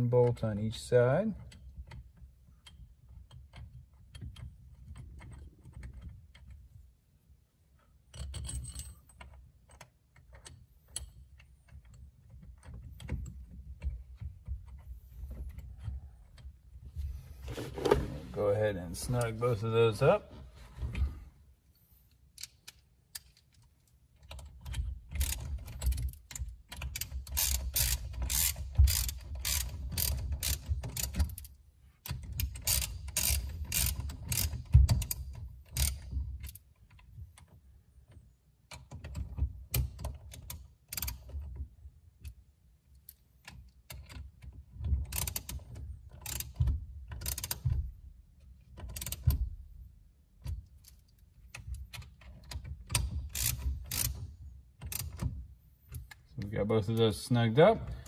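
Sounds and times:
hand ratchet clicking: 0:22.4 - 0:37.5, 0:38.7 - 0:41.5, 0:45.0 - 0:47.9, 0:48.8 - 0:49.4, 0:50.7 - 0:55.3.

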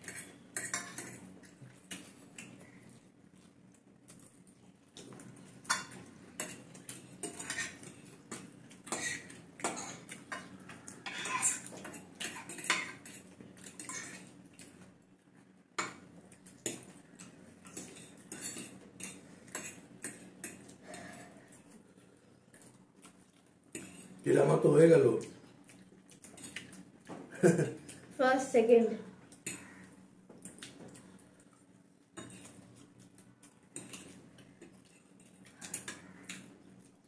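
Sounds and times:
forks clinking on plates: 0:00.0 - 0:01.2, 0:05.6 - 0:14.3, 0:17.6 - 0:21.2.

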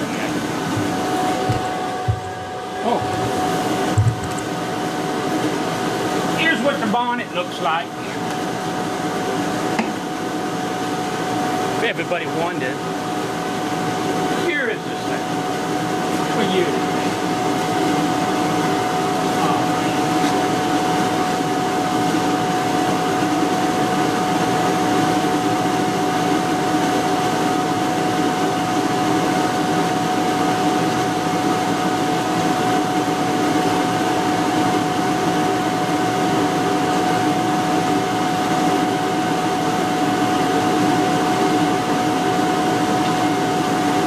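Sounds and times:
outboard motor running: 0:00.0 - 0:08.2.

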